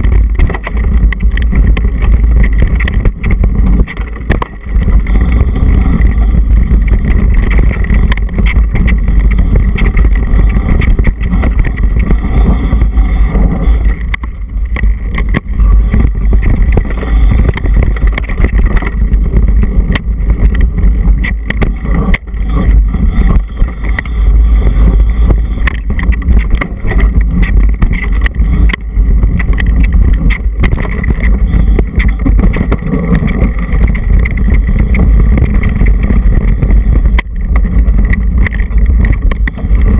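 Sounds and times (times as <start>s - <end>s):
bike knocks and rattles: 0.0s - 39.9s
wind buffeting microphone: 0.0s - 39.9s.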